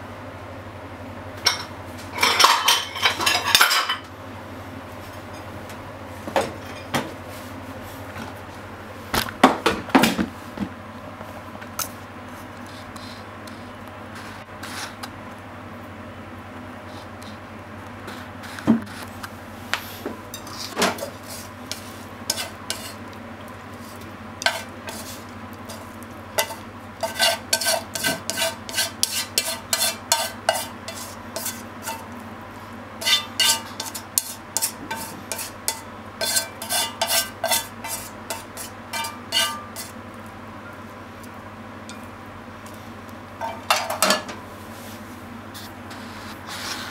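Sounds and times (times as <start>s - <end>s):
steady low hum: 0.0s - 46.9s
utensil scraping a frying pan: 20.3s - 23.0s, 23.7s - 32.1s, 33.0s - 40.0s.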